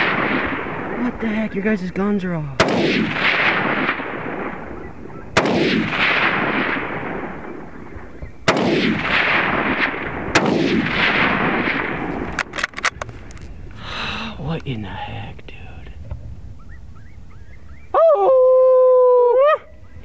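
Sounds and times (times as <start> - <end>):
rifle shots with echo: 0.0 - 1.2, 2.6 - 13.1.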